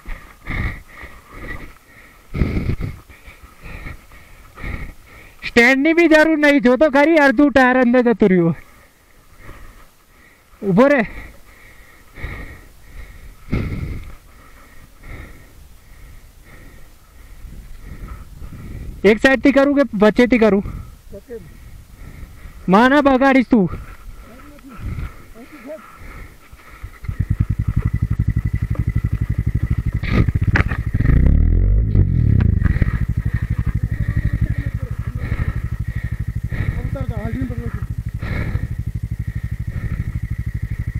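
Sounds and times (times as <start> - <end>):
heavy breathing: 0.0 - 5.6, 8.6 - 19.0, 20.6 - 22.7, 23.7 - 28.0, 32.4 - 40.9
motorcycle engine revving: 24.4 - 40.9.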